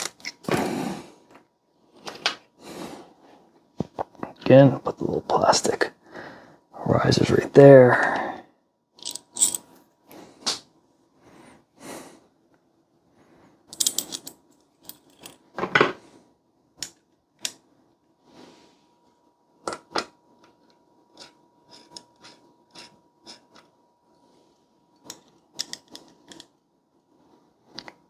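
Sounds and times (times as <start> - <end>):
clicks and rattles of hardware handled: 9.0 - 9.7, 13.7 - 15.9, 25.0 - 26.5.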